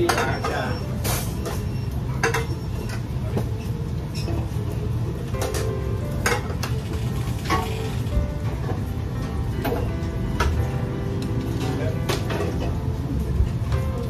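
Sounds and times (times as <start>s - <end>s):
metal pans and utensils clattering: 0.0s - 8.8s, 11.5s - 12.9s.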